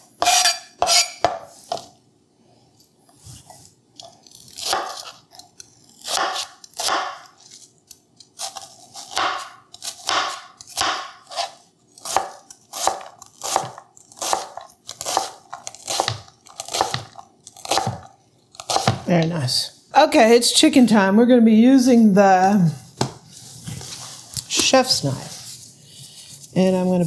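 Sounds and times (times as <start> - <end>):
knife dicing onion on cutting board: 0.2 - 1.8, 6.0 - 7.3, 8.4 - 19.1.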